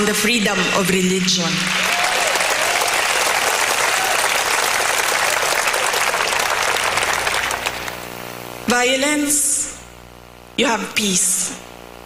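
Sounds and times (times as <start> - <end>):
audience applauding: 1.6 - 8.1.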